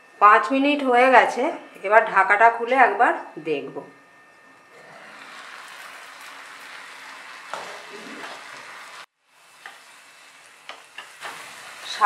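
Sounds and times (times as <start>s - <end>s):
vegetables sizzling in a pan: 4.8s - 12.0s.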